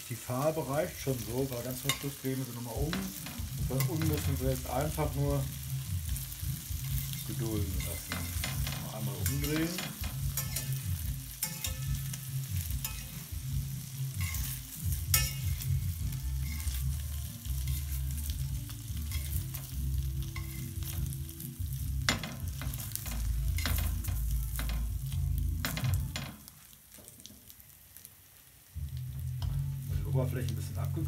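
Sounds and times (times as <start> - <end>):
patties sizzling in oil: 0.0 - 31.0
knife scraping frying pan: 6.8 - 13.4, 14.1 - 18.4, 19.1 - 21.2.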